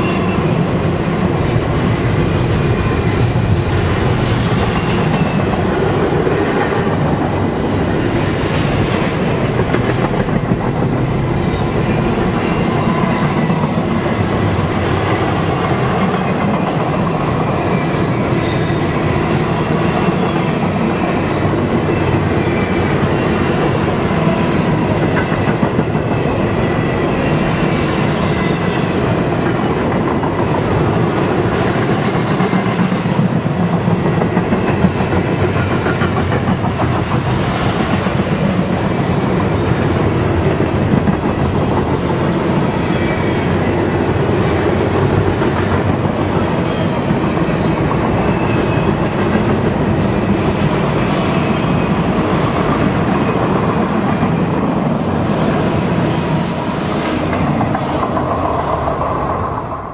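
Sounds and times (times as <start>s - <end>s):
freight train wheels clattering: 0.0s - 59.6s.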